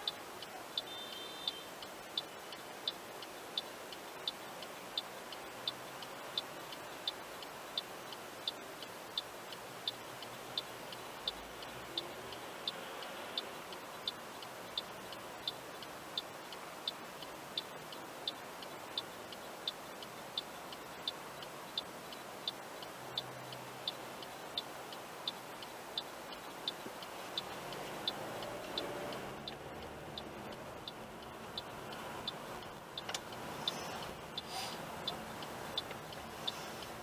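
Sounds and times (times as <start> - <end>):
low engine and traffic hum: 0.0 - 37.0
turn signal clicking: 20.0 - 37.0.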